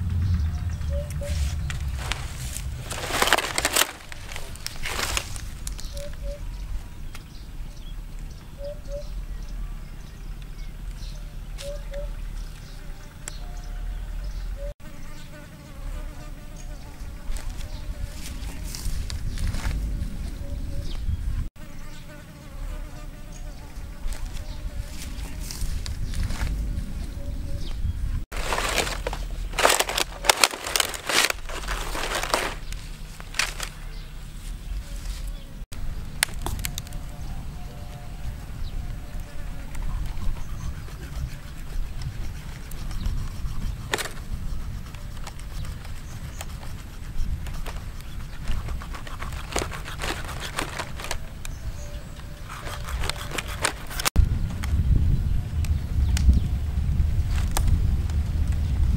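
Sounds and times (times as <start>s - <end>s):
dry palm fronds crackling: 0.0s - 7.3s, 17.2s - 20.4s, 24.0s - 27.1s, 28.3s - 40.2s, 45.0s - 54.9s, 55.5s - 58.9s
steady low rumble: 0.0s - 14.8s, 15.7s - 21.5s, 22.5s - 48.6s, 54.1s - 58.9s.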